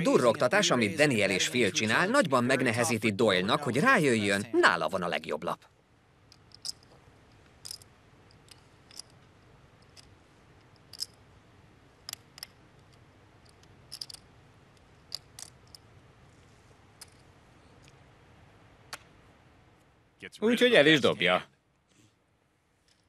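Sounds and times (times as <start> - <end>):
poker chips clicking: 6.3 - 6.9, 7.6 - 9.2, 10.7 - 11.2, 12.1 - 14.2, 15.0 - 15.8.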